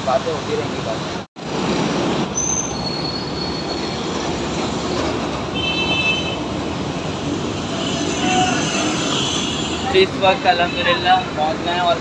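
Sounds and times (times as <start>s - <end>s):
high-pitched squeals: 2.3s - 5.2s.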